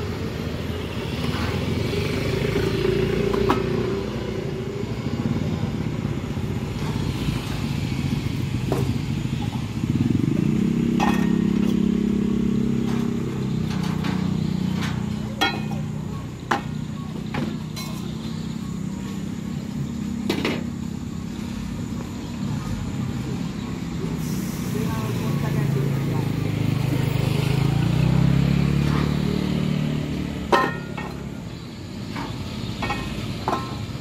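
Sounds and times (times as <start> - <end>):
vehicle engine running: 1.0 - 34.0
metal cookware clinking: 13.0 - 16.0, 17.7 - 18.2, 30.5 - 31.2.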